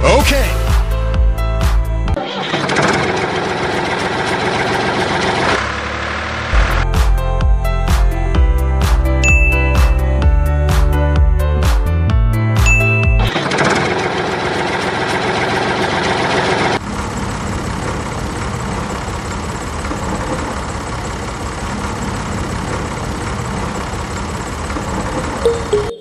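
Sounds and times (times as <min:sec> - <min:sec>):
small motor rattling: 0:13.3 - 0:25.4.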